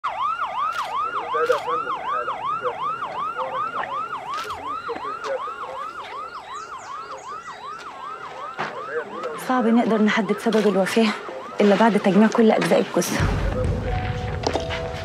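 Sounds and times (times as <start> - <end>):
siren yelping: 0.0 - 15.0.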